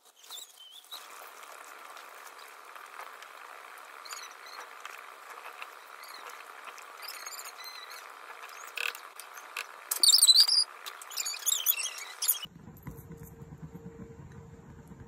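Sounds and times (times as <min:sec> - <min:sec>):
porridge pot hissing: 0:00.9 - 0:12.5
high squeaky chirps: 0:03.9 - 0:12.5.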